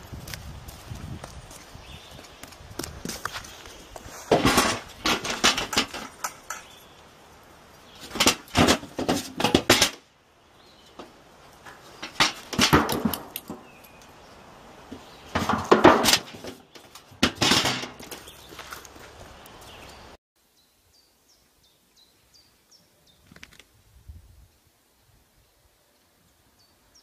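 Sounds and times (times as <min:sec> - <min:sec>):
goat hooves clattering on metal lids: 0:02.9 - 0:07.0, 0:07.8 - 0:10.0, 0:10.9 - 0:14.0, 0:14.9 - 0:19.1.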